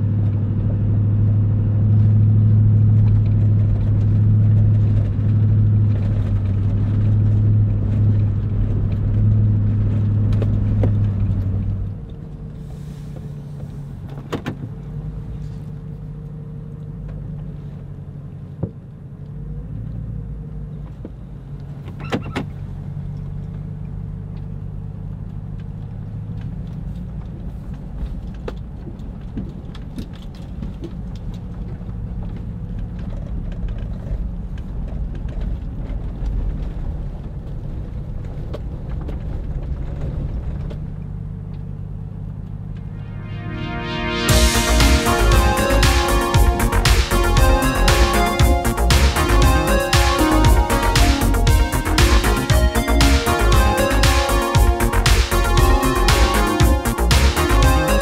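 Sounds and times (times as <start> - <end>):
truck engine and road rumble: 0.0 - 58.0
sharp knocks from tyres and cab: 14.0 - 14.8.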